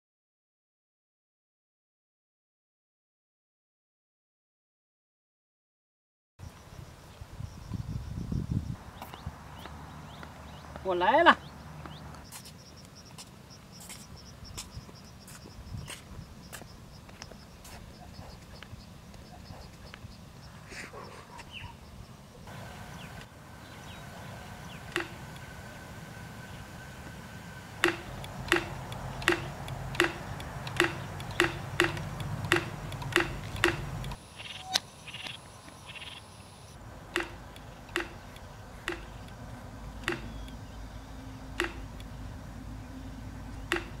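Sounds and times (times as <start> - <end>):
windmill knocking on bamboo: 24.6 - 25.6, 27.8 - 34.2, 36.9 - 40.8, 41.5 - 42.2, 43.5 - 44.0.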